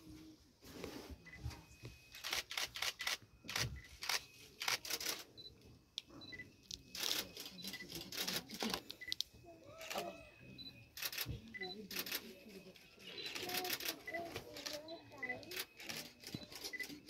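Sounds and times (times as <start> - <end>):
faint high peeps: 5.4 - 17.0.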